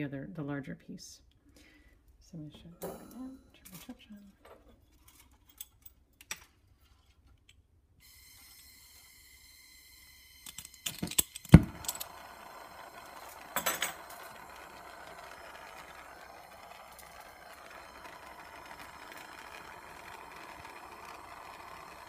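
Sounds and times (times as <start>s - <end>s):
torch flame hissing: 8.0s - 22.0s
soldering torch igniter clicks: 10.4s - 22.0s.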